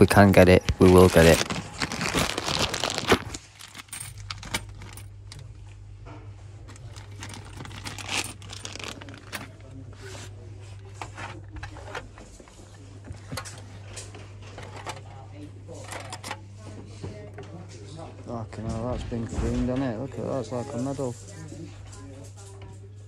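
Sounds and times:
handling rustle: 0.0 - 5.4, 6.6 - 15.1
coins rattling in metal tin: 0.8 - 5.1, 6.8 - 9.6.

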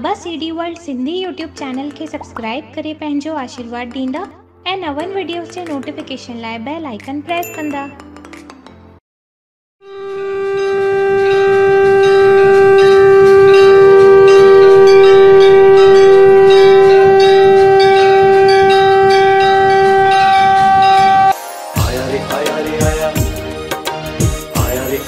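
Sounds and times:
bell ringing: 7.4 - 8.0, 12.8 - 22.6
conch shell long note: 9.8 - 21.4.

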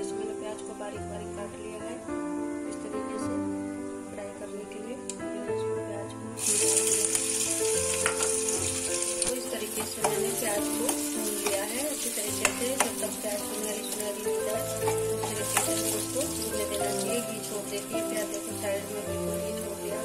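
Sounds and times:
onions sizzling in hot fat: 6.4 - 20.0.

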